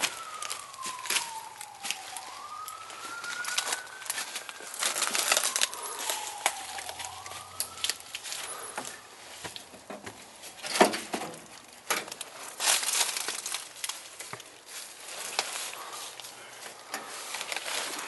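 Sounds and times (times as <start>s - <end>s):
dry leaves crunching: 0.0s - 10.6s, 11.4s - 18.0s
distant siren wailing: 0.0s - 10.7s, 14.7s - 18.0s.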